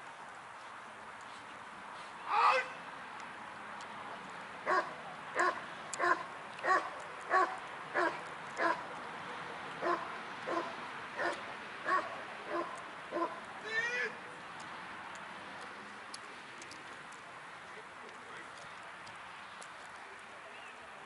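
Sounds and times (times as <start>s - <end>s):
dog barking: 4.7s - 8.8s, 9.8s - 13.4s.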